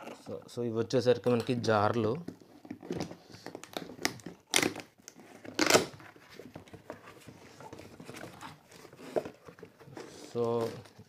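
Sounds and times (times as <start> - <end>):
cardboard clicking and rustling: 2.4 - 11.0
packing tape ripping: 3.6 - 6.0.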